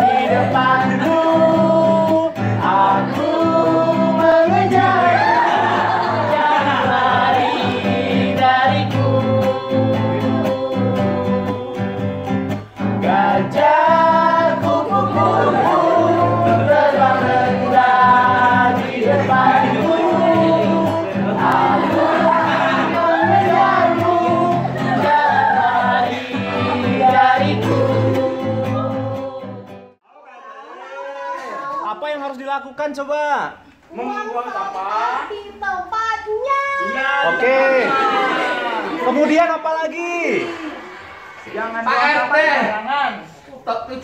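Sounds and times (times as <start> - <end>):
acoustic guitar: 0.0 - 30.0
several voices singing: 0.0 - 30.0.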